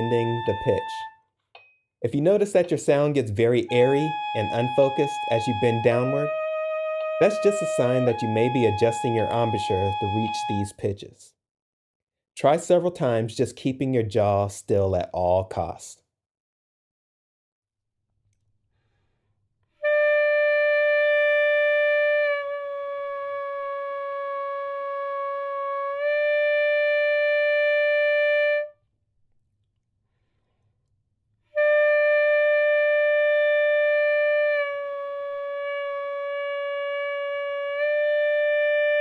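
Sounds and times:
alto saxophone long bent notes: 0:00.0 - 0:01.2, 0:03.4 - 0:10.7, 0:19.8 - 0:28.7, 0:31.6 - 0:39.0.

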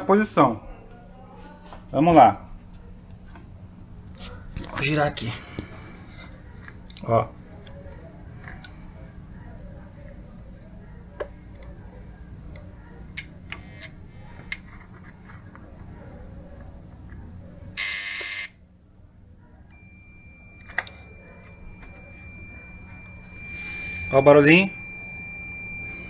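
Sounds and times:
multimeter continuity beep: 0:17.8 - 0:18.6, 0:19.7 - 0:26.0.

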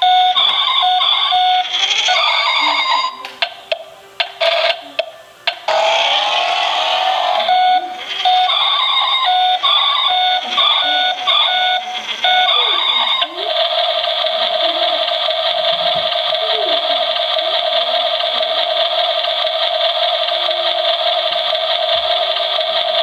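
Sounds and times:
toy beeping alarm tones: 0:00.0 - 0:03.3, 0:05.7 - 0:15.2
toy buzzing engine sound: 0:00.3 - 0:03.2, 0:05.6 - 0:23.0.

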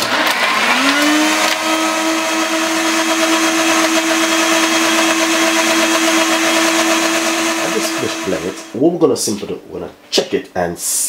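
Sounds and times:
blender motor whining: 0:00.0 - 0:08.8.

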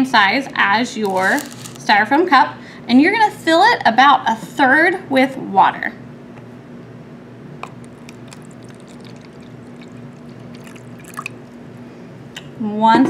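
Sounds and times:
water trickling into container: 0:07.7 - 0:11.6.

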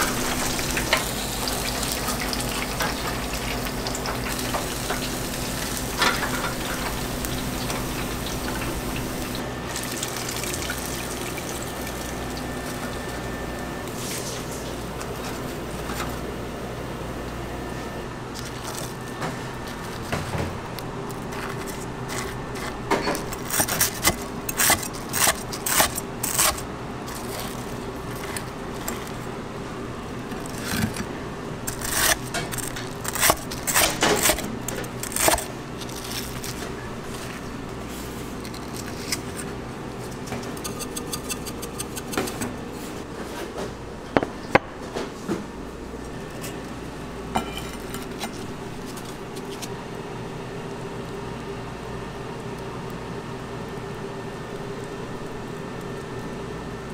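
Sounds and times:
steady background hum: 0:00.0 - 0:56.9
knife crunching through fried crust: 0:21.1 - 0:29.3, 0:30.3 - 0:42.4.

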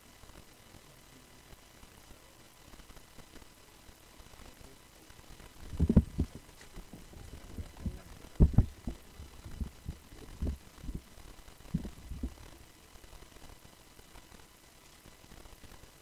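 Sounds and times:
low dull thuds: 0:05.6 - 0:12.5.

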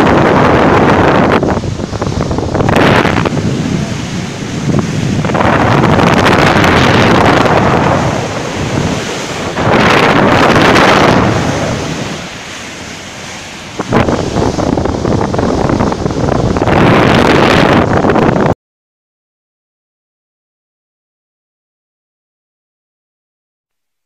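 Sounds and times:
bow wave rushing: 0:00.0 - 0:18.0
wind buffeting microphone: 0:00.0 - 0:18.6.

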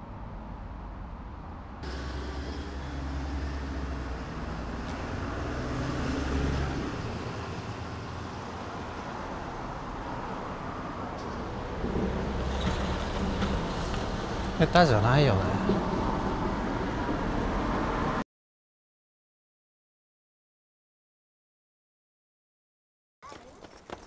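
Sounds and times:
steady traffic hum: 0:00.0 - 0:18.2
vehicle passing close by: 0:01.8 - 0:18.2.

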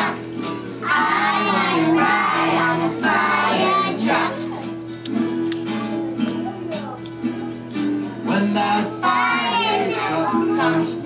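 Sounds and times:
children singing: 0:00.0 - 0:04.6, 0:08.3 - 0:11.0.

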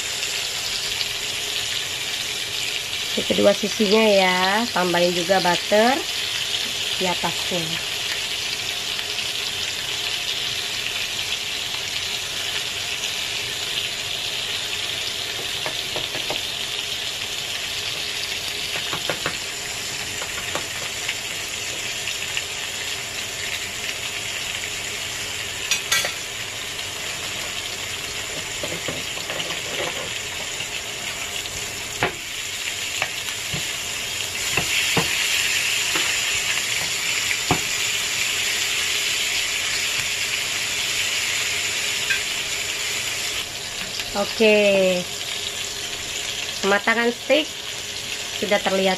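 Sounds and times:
steaks sizzling on a grill: 0:00.0 - 0:48.9.

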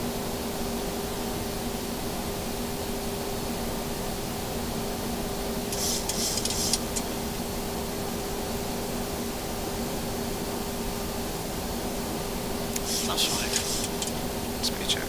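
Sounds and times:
air-conditioning airflow hiss: 0:00.0 - 0:15.0
brief high hiss: 0:05.7 - 0:07.0, 0:12.7 - 0:14.2.

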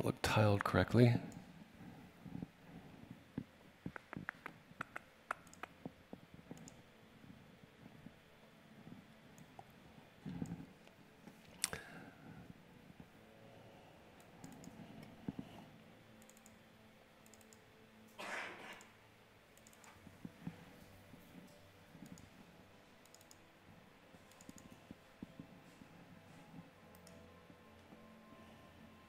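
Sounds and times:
faint computer clicks: 0:03.9 - 0:05.7, 0:24.3 - 0:24.7.

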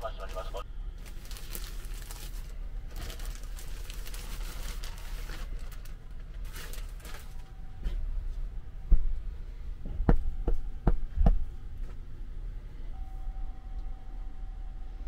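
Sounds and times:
low steady hum: 0:00.0 - 0:15.0
plastic packaging crinkling: 0:01.0 - 0:07.5.

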